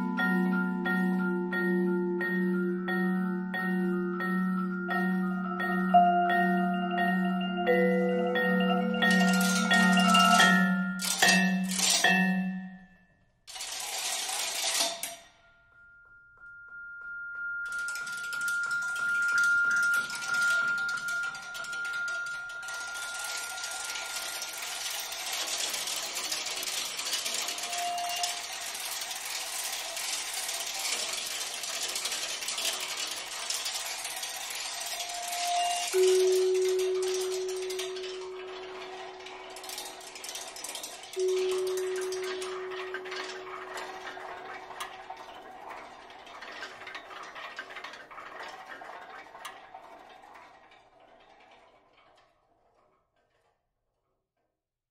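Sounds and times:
marimbas playing softly: 0.0 - 12.6, 16.4 - 24.8, 35.0 - 40.1, 41.2 - 44.6
scraping and rattling on vibraphones: 0.0 - 15.6, 17.0 - 51.9.

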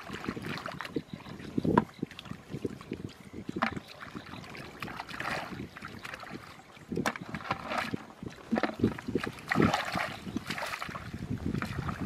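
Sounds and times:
hands splashing in muddy water: 3.6 - 12.0.

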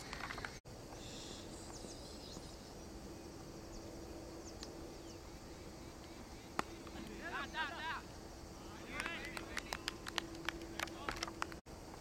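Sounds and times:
low background noise: 0.0 - 12.0
faint high bird chirps: 1.0 - 6.6.

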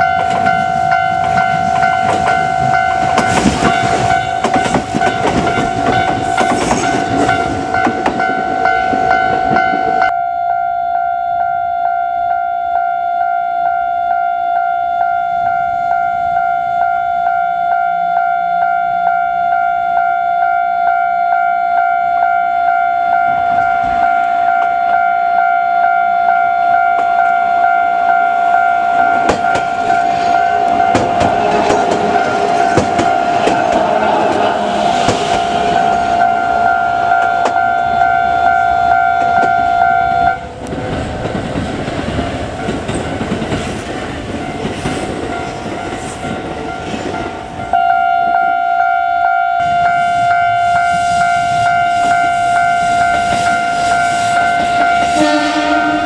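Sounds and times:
train rumbling past: 0.0 - 10.1, 23.0 - 56.0
train wheel clatter: 0.0 - 10.1, 29.0 - 38.6, 40.4 - 47.7, 50.2 - 56.0
level crossing bell ringing: 0.0 - 34.7, 35.5 - 40.4.

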